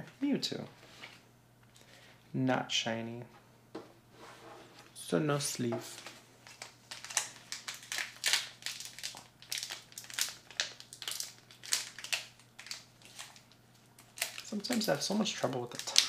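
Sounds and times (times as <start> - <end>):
foil wrapper crinkling: 5.9 - 16.0.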